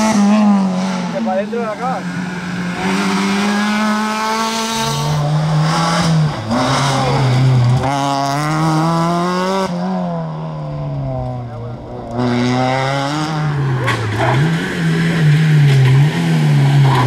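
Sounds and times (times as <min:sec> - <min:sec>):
rally car engine revving: 0:00.0 - 0:17.0.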